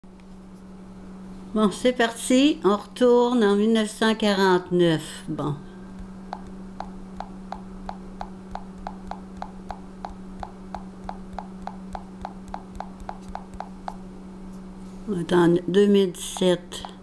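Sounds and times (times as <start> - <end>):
low steady hum: 0.0 - 17.0
fingertip taps on touchscreen: 6.3 - 14.0, 16.3 - 17.0.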